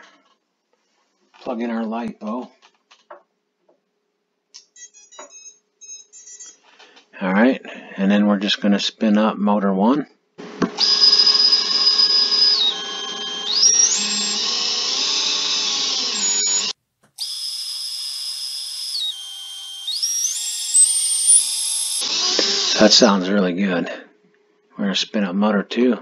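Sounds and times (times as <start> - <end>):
motor high whine: 10.7 - 23.0.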